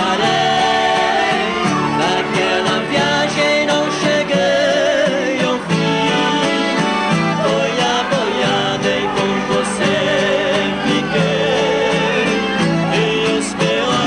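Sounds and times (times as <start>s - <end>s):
accordion chords: 0.0s - 14.0s
acoustic guitars strumming: 0.0s - 14.0s
voices singing a duet: 0.0s - 14.0s.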